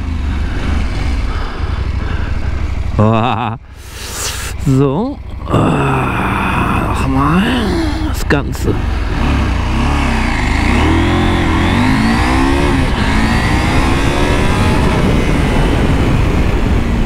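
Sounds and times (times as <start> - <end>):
motorcycle engine accelerating hard: 0.0 - 17.0.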